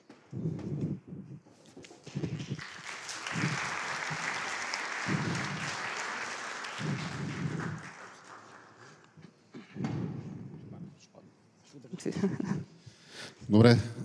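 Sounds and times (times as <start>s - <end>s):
audience applauding: 2.0s - 9.2s.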